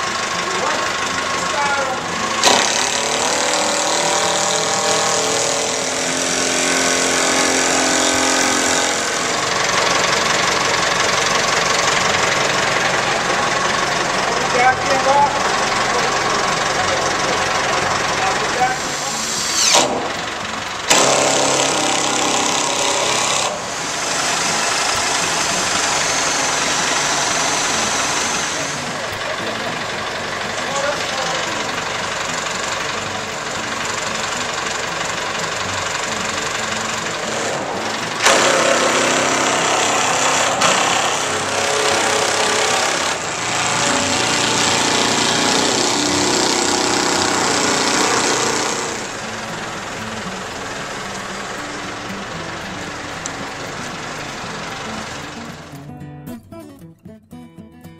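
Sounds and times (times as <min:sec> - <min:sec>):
cordless drivers driving screws: 0:00.0 - 0:13.8, 0:15.1 - 0:29.2, 0:34.8 - 0:49.7
motor running: 0:00.0 - 0:56.0.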